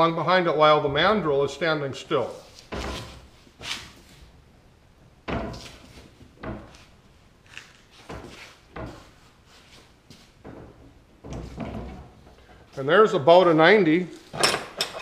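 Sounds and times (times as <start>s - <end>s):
tube bender knocks and creaks: 5.2s - 7.0s, 10.4s - 12.8s.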